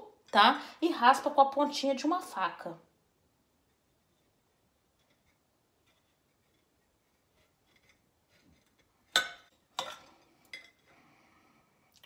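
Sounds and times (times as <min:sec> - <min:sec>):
faint scratches: 0:03.6 - 0:09.0.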